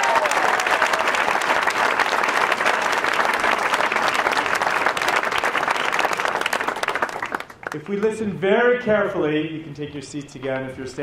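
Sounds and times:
crowd applauding: 0.0 - 8.1.

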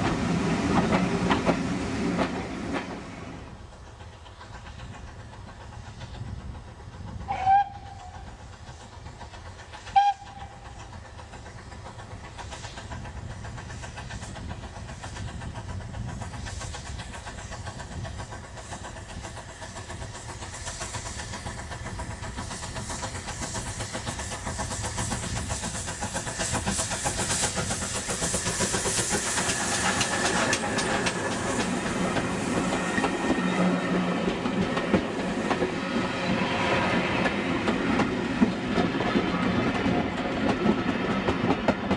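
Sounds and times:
train running noise: 0.0 - 41.9
wheels clacking on rail joints: 0.0 - 41.9
steam locomotive whistle: 7.3 - 8.3, 9.9 - 10.7.

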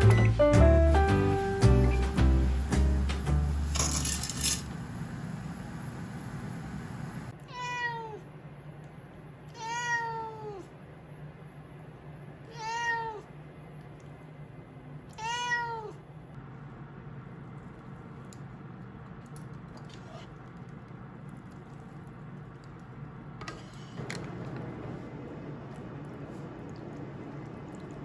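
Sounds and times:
background music: 0.0 - 3.8
cat meowing: 7.5 - 8.2, 9.5 - 10.7, 12.5 - 13.3, 15.1 - 16.0.

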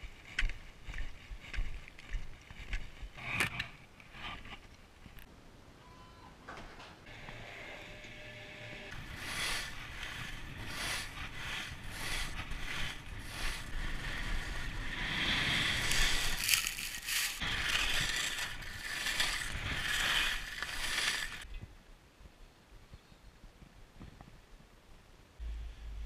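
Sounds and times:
skis scraping on snow: 8.9 - 21.5.

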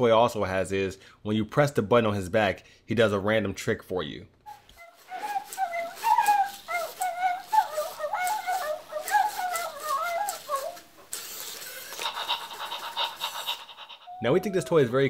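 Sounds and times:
electronic dog sounds: 11.5 - 15.0.

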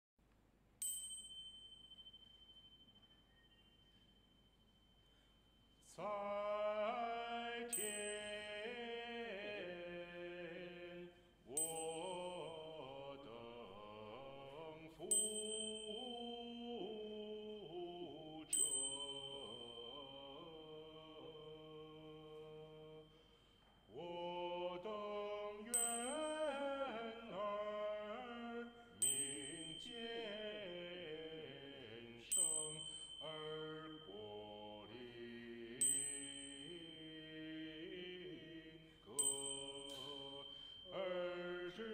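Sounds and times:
small bell ringing: 0.8 - 5.8, 7.7 - 9.1, 11.5 - 13.1, 15.0 - 22.2, 25.6 - 38.2, 38.9 - 41.9
small choir chanting: 5.8 - 23.1, 23.9 - 41.9.

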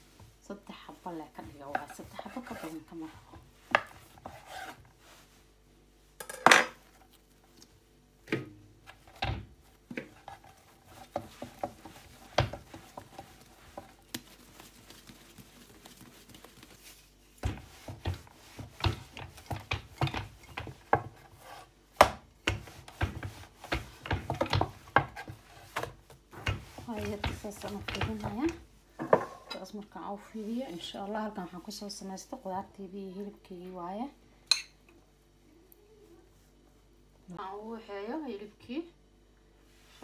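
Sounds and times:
rolling pin on wooden board: 1.3 - 4.8, 8.3 - 29.5.

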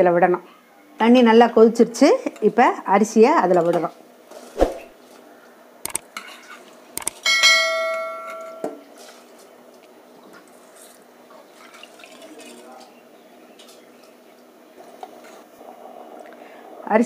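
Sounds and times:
metal utensil clanging on cooker: 7.3 - 8.8.

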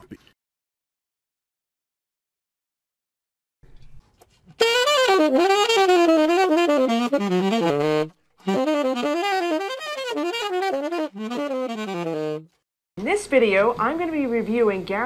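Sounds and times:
saxophone jazz runs: 4.5 - 12.6.

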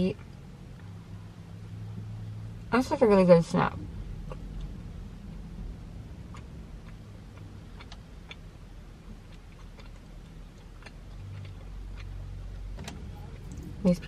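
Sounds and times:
low steady hum: 0.0 - 14.0
mouth clicks chewing: 9.1 - 12.3.

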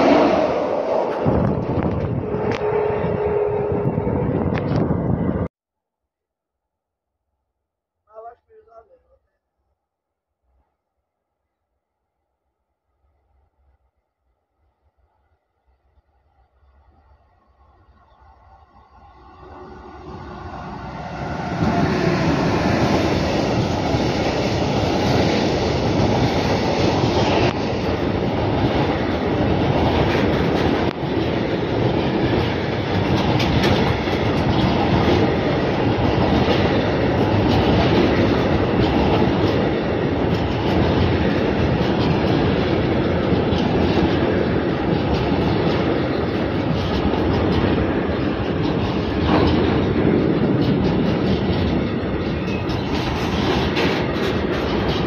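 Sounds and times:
freight train rumbling past: 0.0 - 5.5, 14.9 - 55.0
wagon wheels clickety-clack: 31.9 - 55.0.

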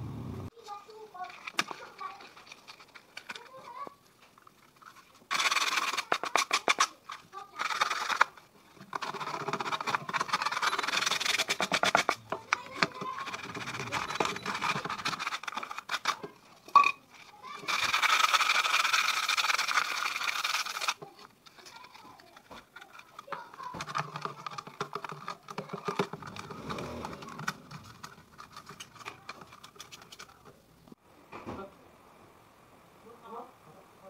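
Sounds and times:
paper and tape rustling: 0.6 - 30.6
loud even rasp: 5.3 - 16.2.

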